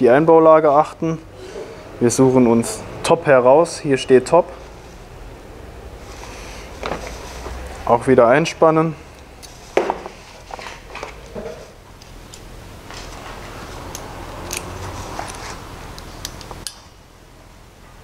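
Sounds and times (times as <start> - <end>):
rustling: 6.0 - 7.8.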